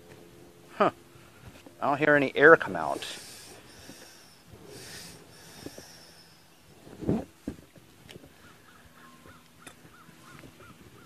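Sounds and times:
faint hissing: 1.8 - 7.4
hands squeezing a tire: 2.8 - 7.6.

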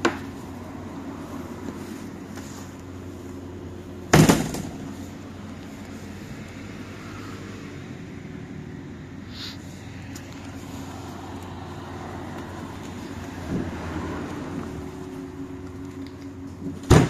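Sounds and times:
bus humming: 0.0 - 17.0
bus ramp banging open: 4.1 - 4.9, 16.6 - 17.0.

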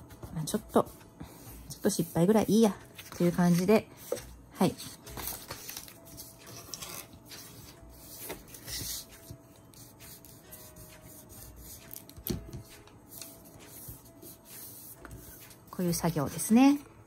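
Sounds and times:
paper rustling: 2.8 - 9.4.

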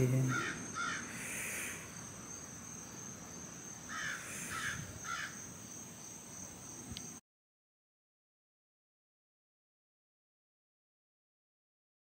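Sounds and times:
bird calling: 0.0 - 1.9, 3.9 - 5.5
high insect drone: 0.0 - 7.2.

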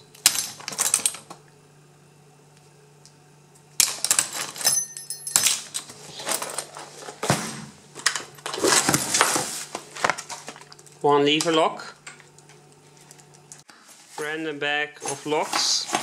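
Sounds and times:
metal locks clattering: 3.8 - 6.8.

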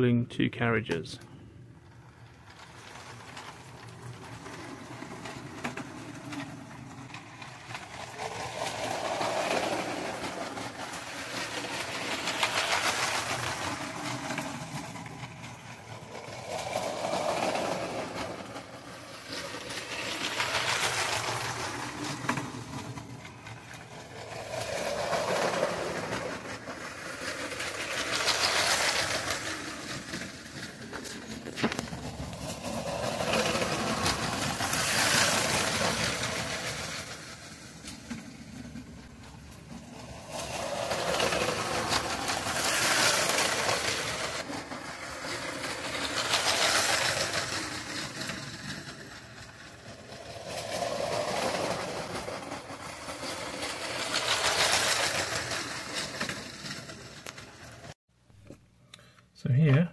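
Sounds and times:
toy train running on rails: 0.9 - 58.0.

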